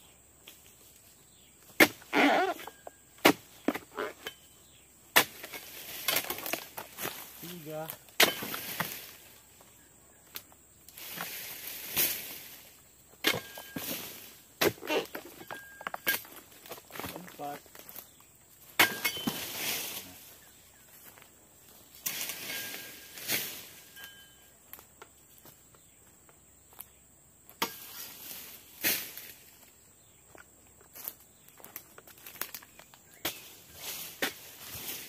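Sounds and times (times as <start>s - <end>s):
fronds rustling: 0.4s - 25.9s, 27.6s - 29.9s, 30.9s - 35.0s
footsteps on dry leaves: 5.3s - 9.8s, 10.9s - 12.9s, 16.3s - 18.2s, 19.0s - 25.6s, 30.9s - 35.0s.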